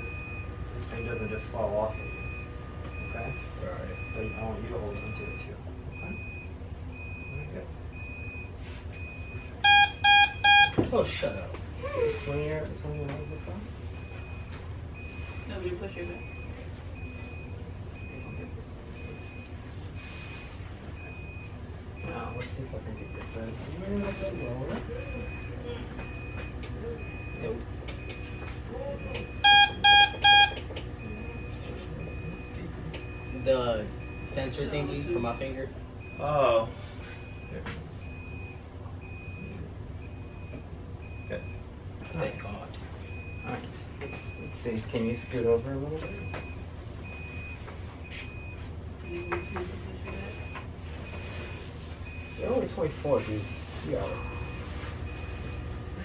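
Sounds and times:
louder group of beeps: 0.0s - 10.8s, 24.1s - 34.6s
monitor alarm high beeps: 0.0s - 11.5s, 12.8s - 45.4s, 46.0s - 55.6s
low steady hum: 0.0s - 56.0s.

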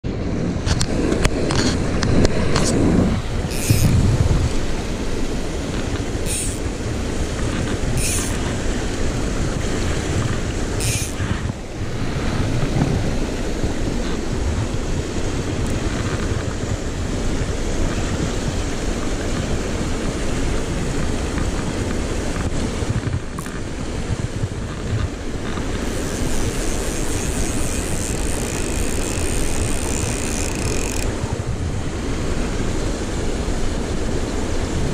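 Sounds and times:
sharp rustles: 3.4s - 4.9s, 5.6s - 8.9s, 10.2s - 11.6s, 24.7s - 31.1s.

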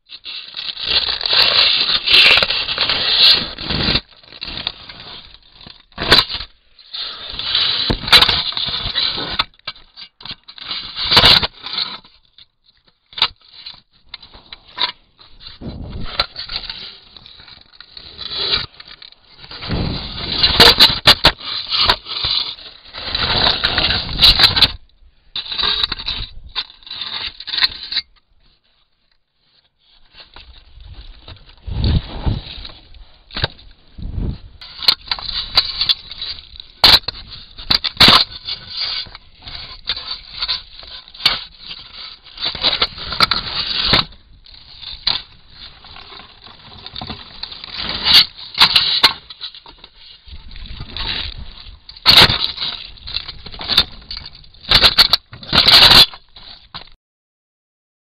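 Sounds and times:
elephant skin scraping on camera: 0.2s - 9.5s, 13.3s - 24.8s, 29.5s - 56.9s.

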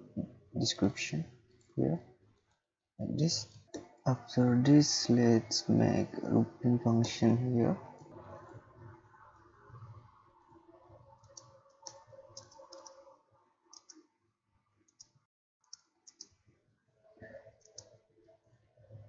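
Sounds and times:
computer keyboard keystrokes: 11.2s - 13.1s, 13.7s - 14.0s, 14.9s - 16.3s.

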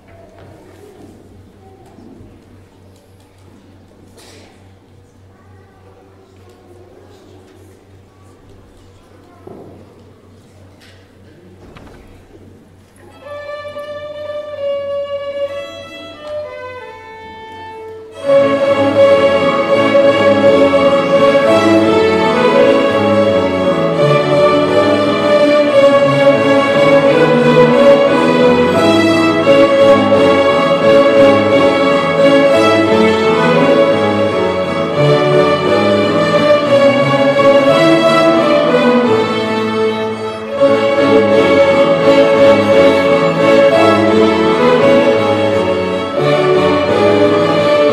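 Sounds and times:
violin ensemble playing: 13.0s - 47.9s.

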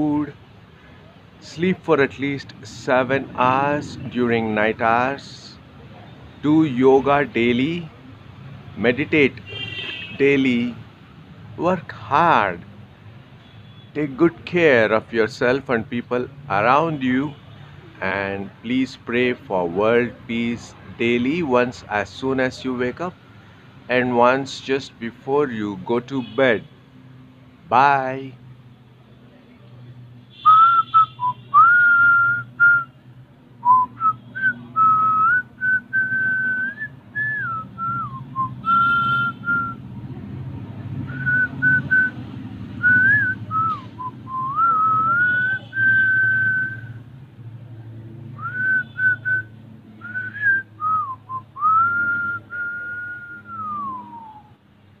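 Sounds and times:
person whistling a tune: 30.4s - 32.9s, 33.6s - 39.8s, 41.1s - 42.2s, 42.8s - 47.0s, 48.4s - 54.6s.

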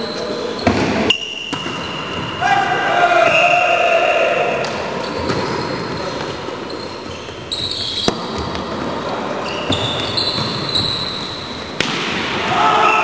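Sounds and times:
indoor hall din: 0.0s - 7.0s, 11.7s - 13.0s.

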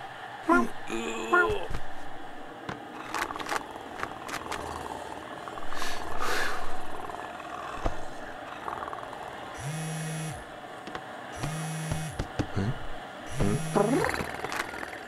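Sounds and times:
cat purring: 3.0s - 9.5s.

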